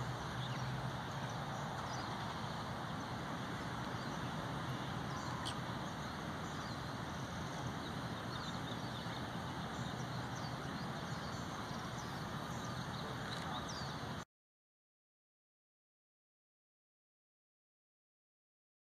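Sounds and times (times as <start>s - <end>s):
outdoor background noise: 0.0s - 14.3s.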